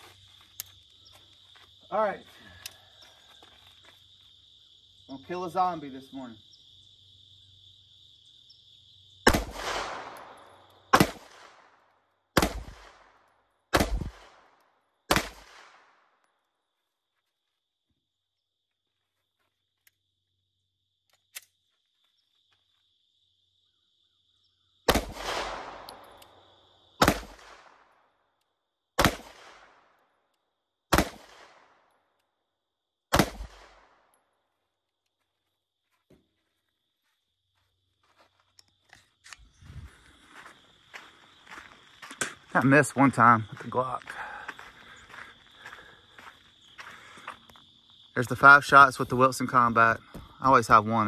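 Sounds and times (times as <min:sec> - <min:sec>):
crickets droning: 0:00.0 - 0:51.0
pistol shots with echo: 0:09.3 - 0:11.8, 0:12.4 - 0:14.5, 0:15.1 - 0:16.0, 0:24.9 - 0:26.2, 0:27.0 - 0:27.9, 0:29.0 - 0:29.8, 0:30.9 - 0:31.8, 0:33.1 - 0:34.0.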